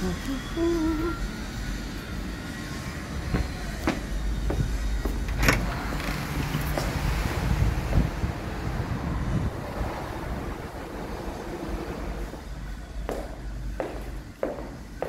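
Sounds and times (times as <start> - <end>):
steady low rumble: 0.0 - 15.0
footsteps: 3.2 - 5.3, 12.2 - 15.0.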